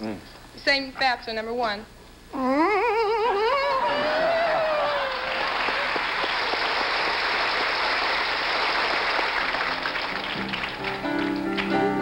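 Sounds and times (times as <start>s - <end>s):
audience applauding: 3.8s - 12.0s
music with held notes: 10.0s - 12.0s.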